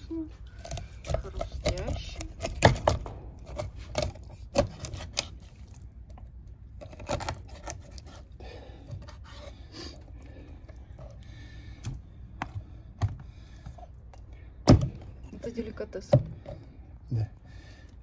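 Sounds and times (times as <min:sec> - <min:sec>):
knife scraping and cutting fish: 0:00.5 - 0:05.8, 0:06.7 - 0:10.1.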